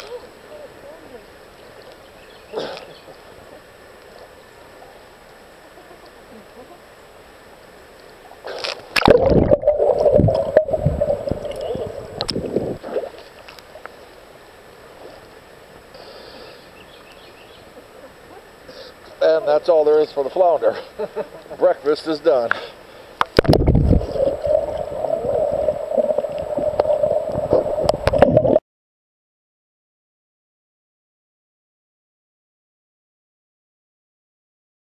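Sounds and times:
water splashing and gurgling: 8.3 - 14.2, 23.2 - 28.6
muffled underwater bubbling: 9.0 - 13.2, 23.2 - 28.6.

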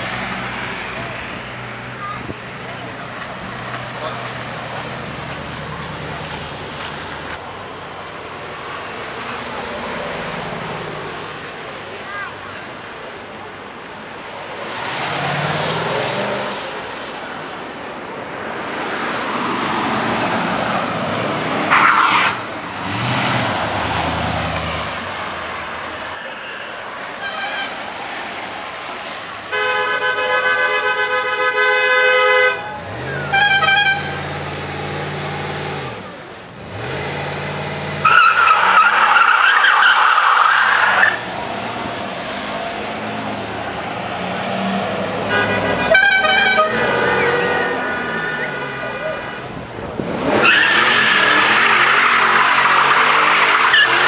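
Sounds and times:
cars driving past revving: 14.2 - 17.8, 18.4 - 27.2, 32.7 - 54.0
car horns honking: 27.2 - 27.9, 29.5 - 34.5, 38.0 - 41.2, 45.2 - 54.0.

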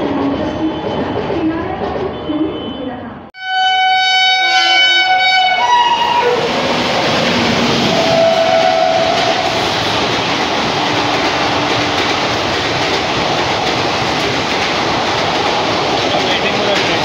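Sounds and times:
train passing at speed: 0.0 - 17.0
locomotive horn: 3.4 - 6.5, 7.9 - 9.6.

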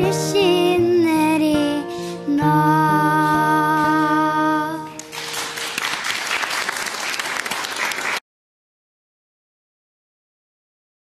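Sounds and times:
audience applause: 5.0 - 8.2.

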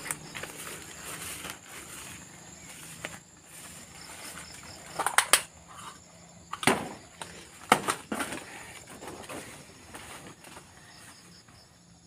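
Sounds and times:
undergrowth rustling and snapping: 0.0 - 5.6, 6.6 - 10.1
insects buzzing: 0.0 - 12.0.

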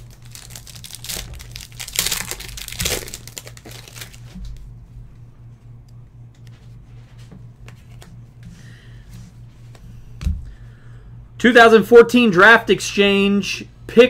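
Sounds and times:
cards crinkling and rustling: 0.0 - 4.6
low electrical hum: 0.0 - 14.0.

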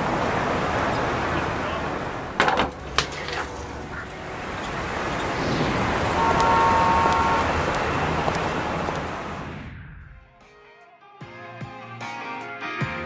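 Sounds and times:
vehicle passing: 0.0 - 10.3
brief steady high tone: 6.1 - 7.7.

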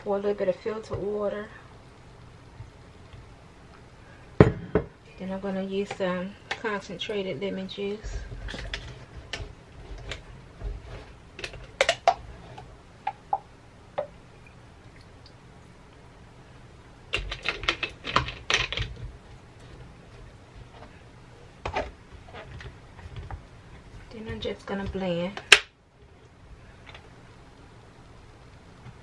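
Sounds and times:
plastic kitchen items clicking: 17.1 - 19.0.

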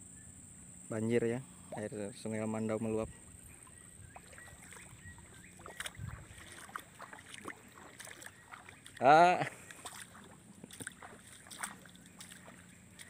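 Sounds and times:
light water splashes: 3.2 - 13.0.

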